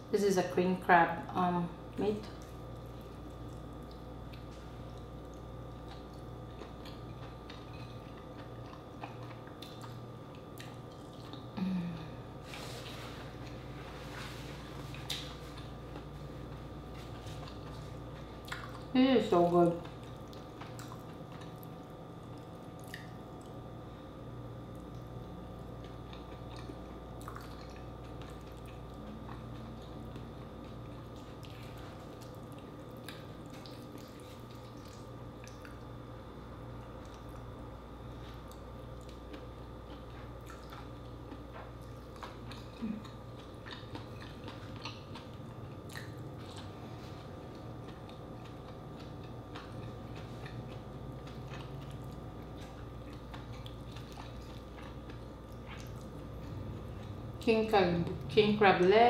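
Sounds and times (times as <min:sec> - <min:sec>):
faint hum: 0:00.0 - 0:59.0
chewing and wet squishing: 0:01.9 - 0:11.6, 0:12.4 - 0:23.8, 0:24.6 - 0:36.0, 0:36.7 - 0:58.9.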